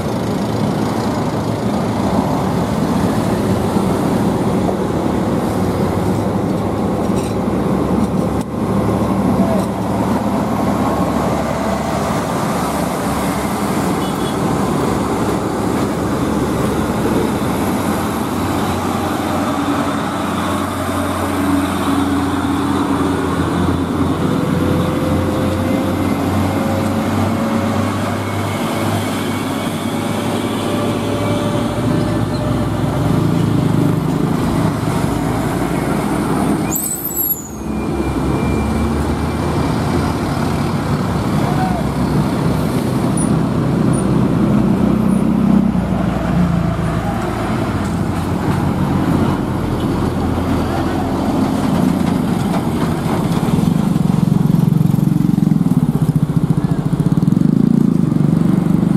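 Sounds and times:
diesel trucks driving past: 0:00.0 - 0:58.9
brief high squeal: 0:36.6 - 0:38.9.

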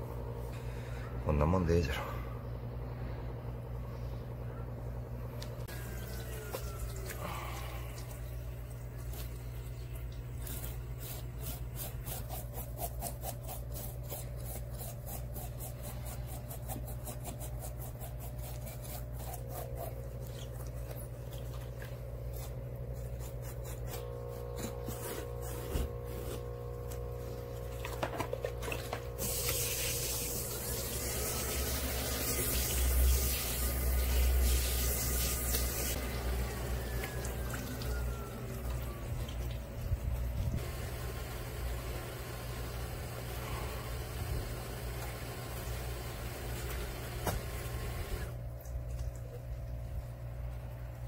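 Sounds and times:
steady low hum: 0:00.0 - 0:51.0
knife scraping fish scales: 0:10.4 - 0:21.0, 0:22.3 - 0:26.4.

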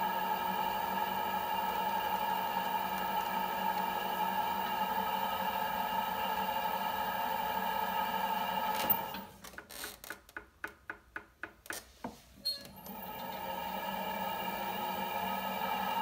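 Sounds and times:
potter's wheel motor whine: 0:00.0 - 0:09.3, 0:12.6 - 0:16.0.

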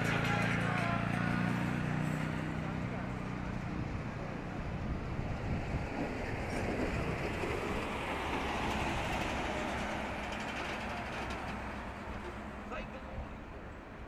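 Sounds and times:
ship engine rumble: 0:02.4 - 0:14.0
water rushing along hull: 0:03.4 - 0:13.6.

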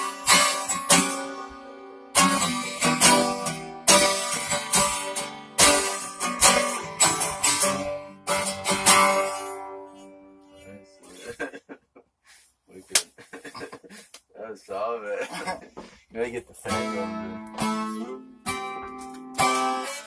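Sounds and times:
acoustic guitar strumming chords: 0:00.0 - 0:11.0, 0:16.6 - 0:20.0.

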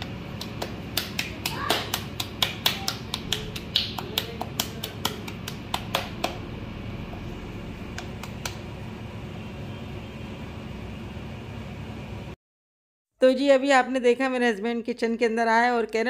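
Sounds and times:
hands slapping dough: 0:00.0 - 0:06.5, 0:07.9 - 0:08.6
steady low hum: 0:00.0 - 0:12.4.

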